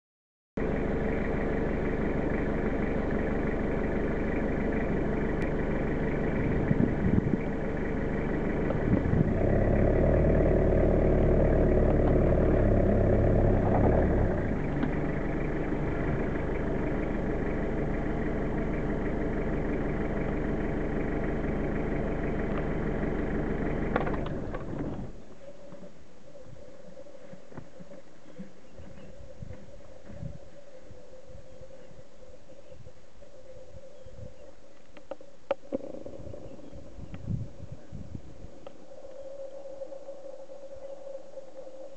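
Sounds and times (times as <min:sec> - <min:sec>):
diesel truck engine idling: 0:00.6 - 0:25.6.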